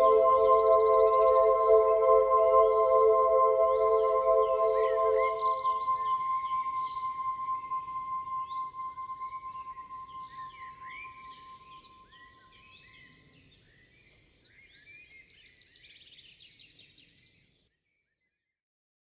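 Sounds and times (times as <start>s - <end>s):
held tone: 0.0s - 11.5s.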